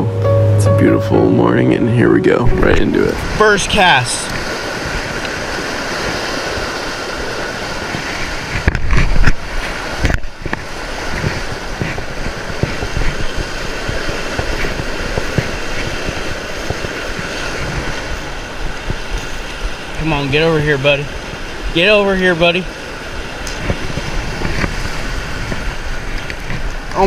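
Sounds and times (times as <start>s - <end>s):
low thumps: 0.0s - 5.2s
stream water rushing through culvert: 2.3s - 27.0s.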